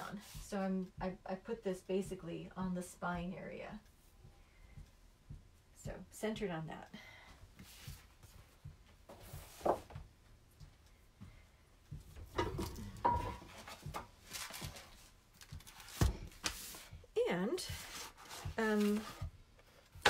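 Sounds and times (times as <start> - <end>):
boards and tools thunking on wood: 12.0 - 14.1.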